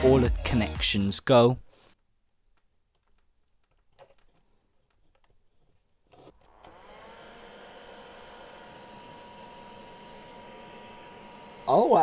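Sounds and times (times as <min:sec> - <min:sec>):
blower fan whirring: 0:06.2 - 0:12.0.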